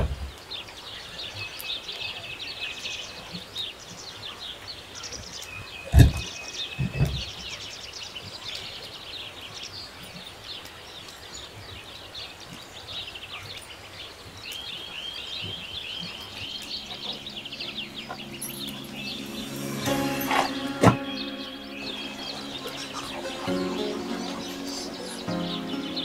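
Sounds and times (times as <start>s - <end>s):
small birds chirping: 0.0s - 26.0s
music: 16.6s - 26.0s.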